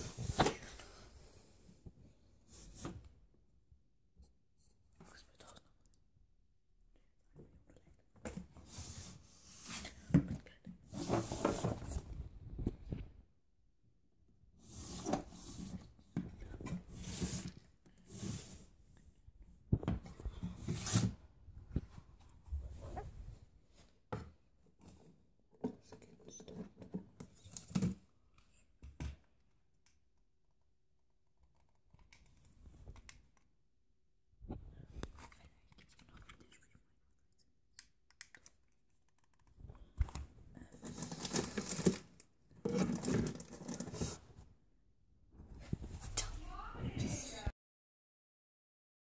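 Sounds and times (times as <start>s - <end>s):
rummaging through a drawer: 10.9s - 12.0s, 40.7s - 44.2s.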